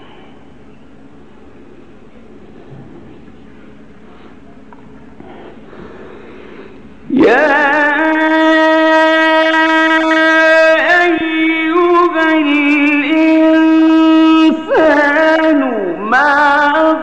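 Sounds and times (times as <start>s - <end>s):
man reciting melodically: 7.0s - 17.0s.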